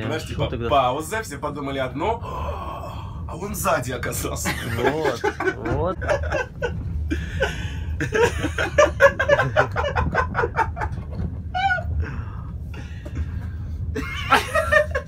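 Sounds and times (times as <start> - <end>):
train rumble: 0.0 - 15.0
breathy laughter: 4.5 - 13.3.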